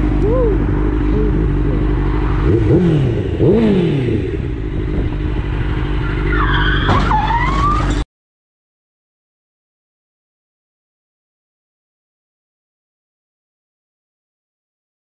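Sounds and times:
motorcycle engine revving: 0.0 - 6.6
tyre squealing: 6.0 - 8.0.

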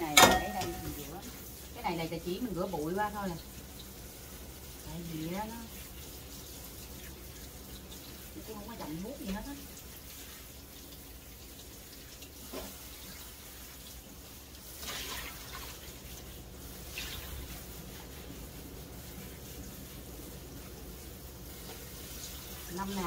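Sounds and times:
tap running into sink: 0.0 - 1.1
water splashes: 0.0 - 20.1.

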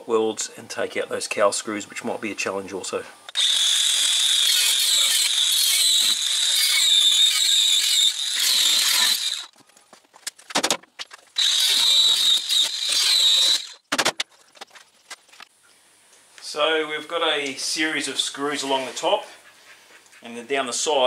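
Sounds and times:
angle grinder cutting steel: 3.3 - 9.5, 11.4 - 13.8.

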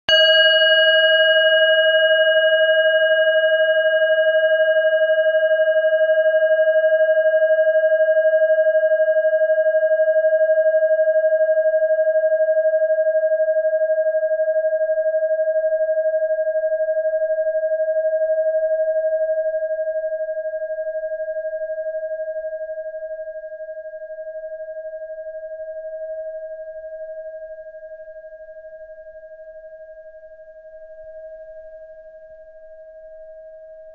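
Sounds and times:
bell ringing: 0.1 - 1.9.

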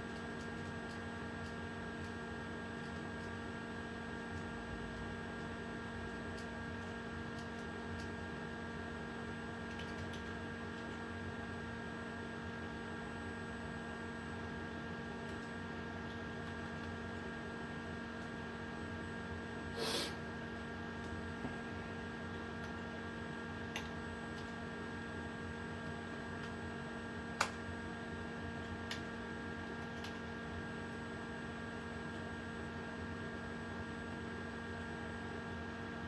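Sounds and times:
electrical hum: 0.0 - 36.0
keyboard and mouse clicks: 0.1 - 2.2, 2.8 - 3.4, 6.3 - 8.1, 9.6 - 11.0, 23.7 - 24.6, 28.8 - 29.1, 29.7 - 30.2.

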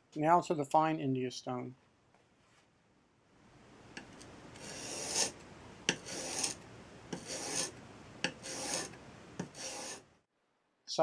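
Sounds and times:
chisel scraping on sharpening stone: 4.6 - 10.0.

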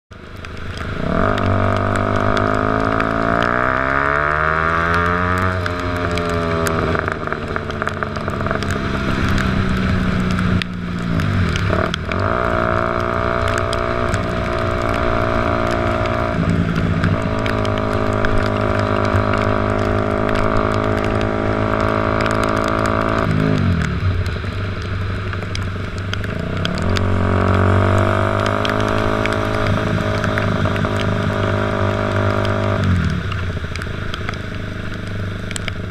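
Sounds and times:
wind and road noise: 0.1 - 35.9
motorcycle engine running: 0.5 - 35.9.

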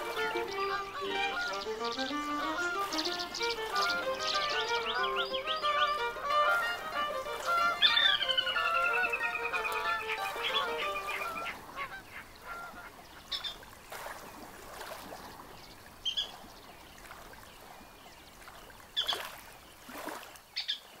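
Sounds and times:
music: 0.0 - 11.5
birds harsh calls: 0.0 - 13.6
faint steady hiss: 0.0 - 20.5.

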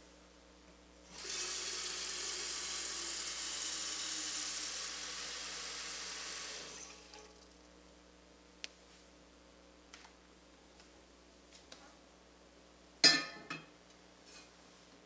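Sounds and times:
water running into a kettle: 1.1 - 7.4.

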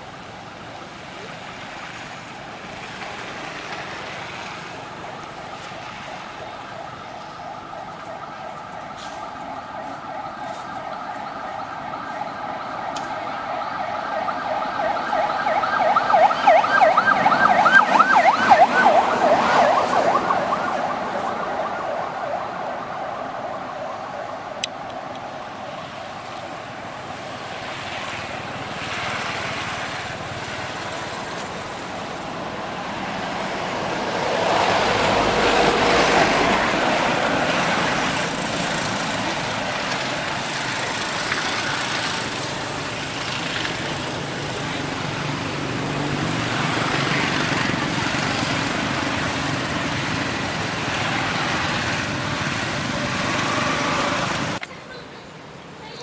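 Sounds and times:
siren wailing: 4.6 - 27.7.

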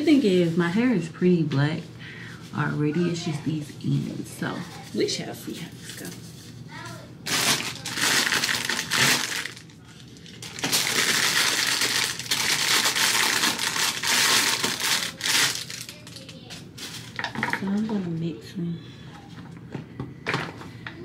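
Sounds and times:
crinkling and rustling by hands: 2.4 - 18.2.

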